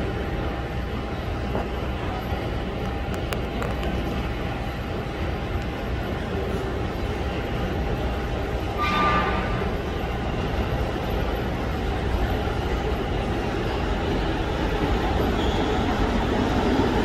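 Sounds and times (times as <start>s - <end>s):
subway train rumbling on rails: 0.0s - 17.0s.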